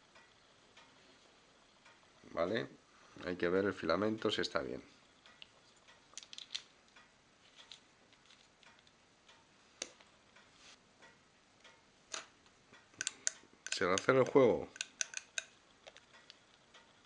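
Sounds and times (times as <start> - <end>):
plastic torch parts clicking: 6.1 - 7.0, 13.0 - 16.9.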